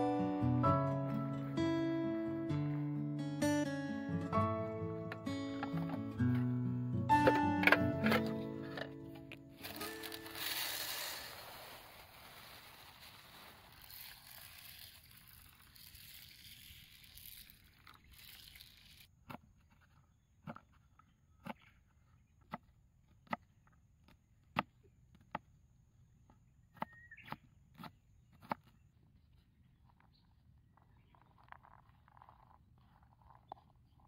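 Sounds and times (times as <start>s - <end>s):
dry rice pouring into tin: 9.6s - 19.0s.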